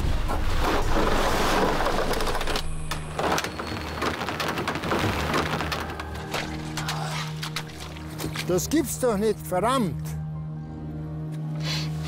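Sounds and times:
car tyres splashing through slush: 0:00.2 - 0:02.4.

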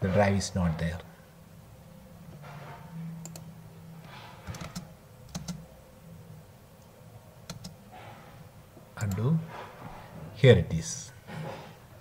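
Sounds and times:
faint low hum: 0:00.0 - 0:12.0
computer mouse buttons clicking: 0:03.2 - 0:03.5, 0:04.5 - 0:05.6, 0:07.4 - 0:07.8.

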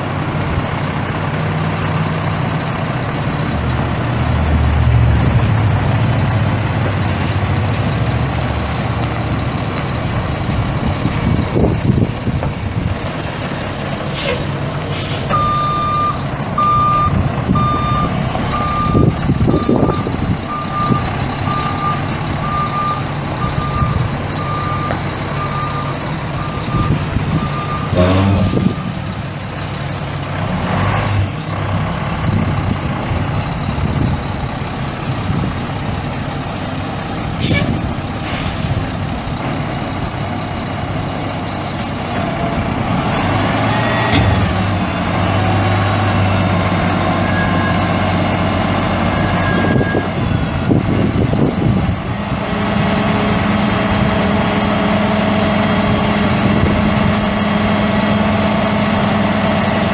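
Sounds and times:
diesel truck engine running: 0:00.0 - 0:59.9
backup alarm beeping: 0:15.3 - 0:28.9.

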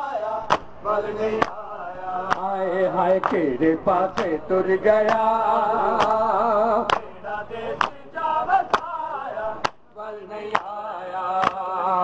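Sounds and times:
men singing a lament: 0:00.0 - 0:12.0
hands striking chests: 0:11.4 - 0:11.6.

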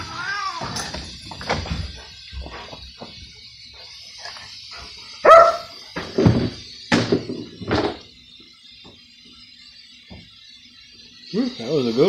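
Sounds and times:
animal cry: 0:00.0 - 0:00.9.

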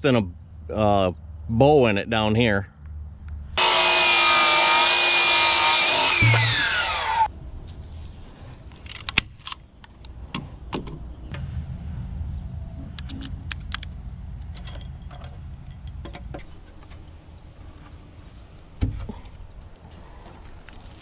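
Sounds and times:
low rumble: 0:11.0 - 0:18.7
tools clicking and clinking: 0:13.0 - 0:17.2.

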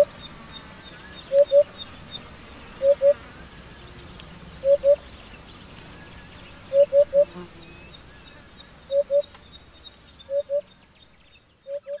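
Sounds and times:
faint higher chirping: 0:00.0 - 0:04.0, 0:04.6 - 0:12.0
bird hooting softly: 0:01.1 - 0:01.8, 0:02.8 - 0:03.2, 0:04.6 - 0:05.0, 0:06.7 - 0:07.3, 0:08.9 - 0:09.3, 0:10.3 - 0:10.7, 0:11.6 - 0:12.0.

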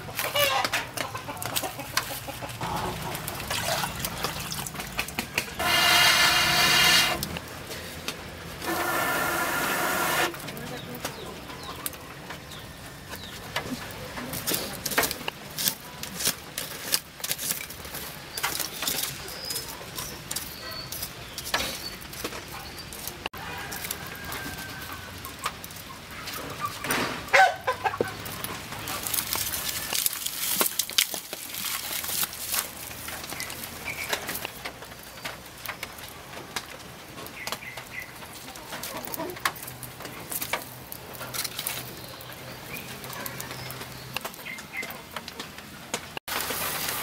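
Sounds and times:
wood fire crackling: 0:00.0 - 0:27.3, 0:27.9 - 0:47.0
chicken clucking: 0:00.1 - 0:03.3.

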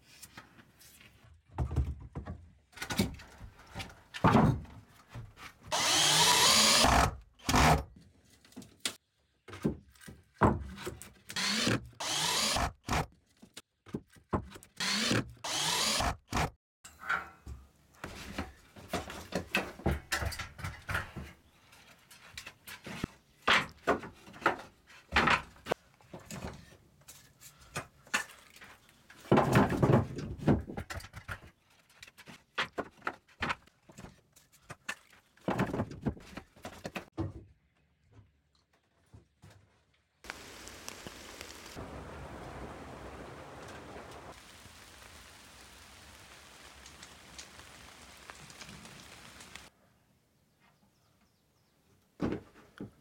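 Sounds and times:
power drill driving into wood: 0:05.7 - 0:07.8, 0:11.4 - 0:13.1, 0:14.8 - 0:16.5.

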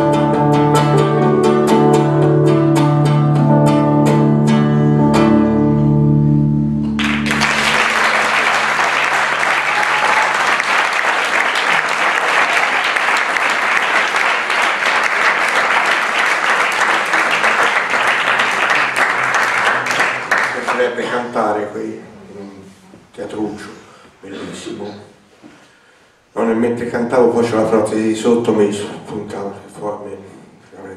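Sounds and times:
acoustic guitar notes and chords: 0:00.0 - 0:07.7
keyboard: 0:00.0 - 0:08.8
audience applause: 0:07.0 - 0:21.0.

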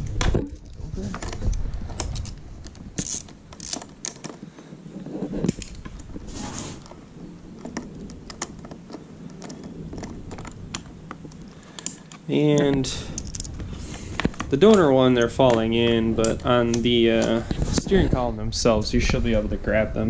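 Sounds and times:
ratchet clicking: 0:03.0 - 0:04.2.

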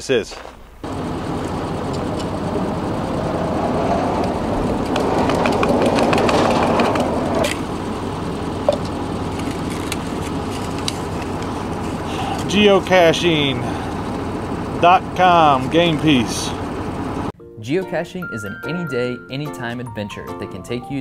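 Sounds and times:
steady low rumble: 0:00.6 - 0:17.3.

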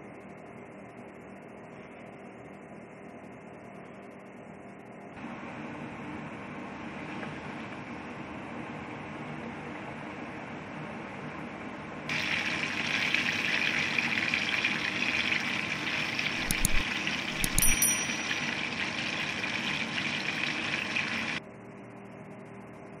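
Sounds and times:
chicken deep-frying in oil: 0:05.5 - 0:21.4
short high chime: 0:16.4 - 0:19.4.

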